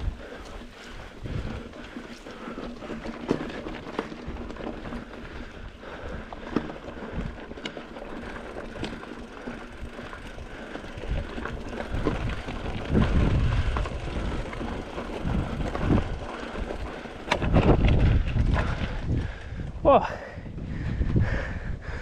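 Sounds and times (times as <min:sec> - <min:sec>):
bike tyres crunching on gravel: 0:00.0 - 0:20.0
bike clicks and knocks: 0:00.2 - 0:19.6
heavy rumble: 0:08.2 - 0:22.0.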